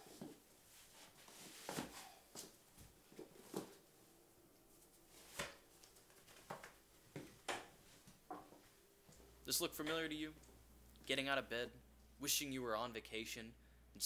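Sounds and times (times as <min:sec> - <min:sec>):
rustles and knocks of boots: 0:00.0 - 0:03.8.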